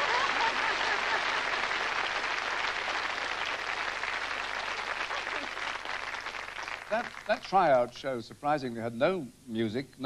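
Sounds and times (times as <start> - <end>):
studio audience applauding: 0.0 - 7.9.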